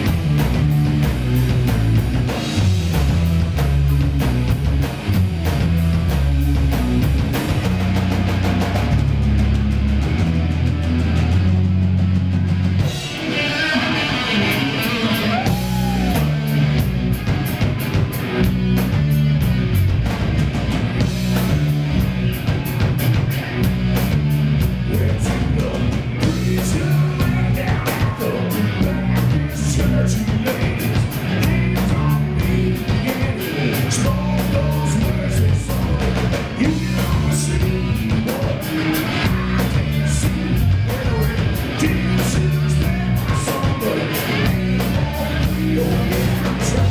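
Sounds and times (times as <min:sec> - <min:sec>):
bass guitar: 0:00.0 - 0:46.9
drum kit beat with cymbals: 0:00.0 - 0:46.9
electric guitars: 0:00.0 - 0:46.9
man singing into a microphone: 0:13.2 - 0:16.4, 0:24.8 - 0:46.9.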